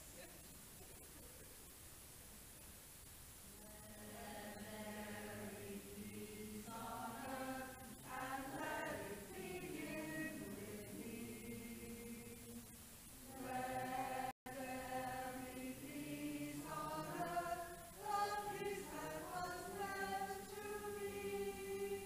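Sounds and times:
group of voices chanting: 13.3s - 22.0s.

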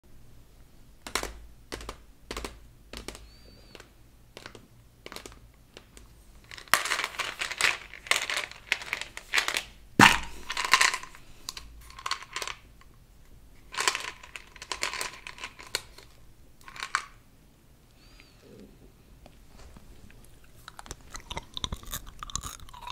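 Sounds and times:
tapping on plastic bottle: 10.0s - 10.9s.

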